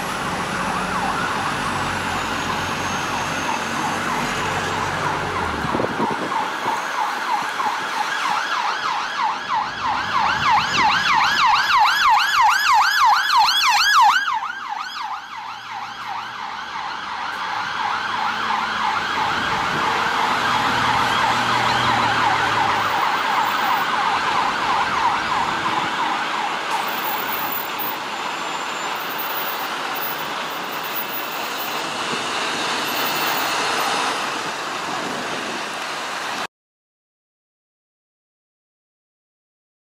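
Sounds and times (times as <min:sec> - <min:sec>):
traffic noise: 0:00.0 - 0:36.5
police siren yelp: 0:00.4 - 0:31.9.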